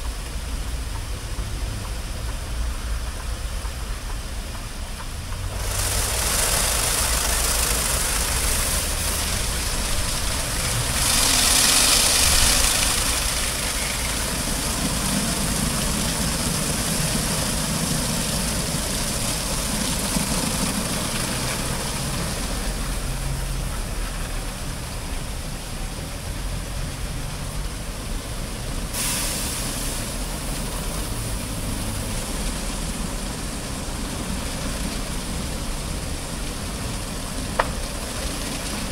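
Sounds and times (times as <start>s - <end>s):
water jets hissing: 0.0s - 38.9s
spinning brushes scrubbing car: 5.4s - 24.0s.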